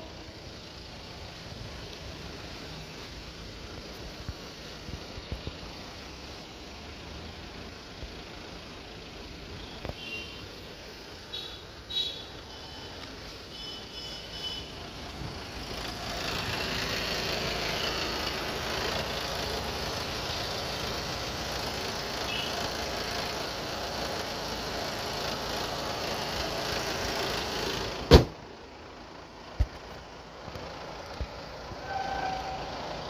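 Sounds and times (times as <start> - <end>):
diesel engine idling: 0.0 - 33.0
bonnet slamming shut: 28.1 - 28.4.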